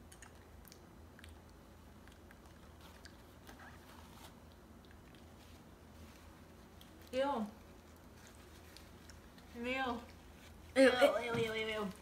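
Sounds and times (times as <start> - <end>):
chewing clicks: 0.0 - 3.5.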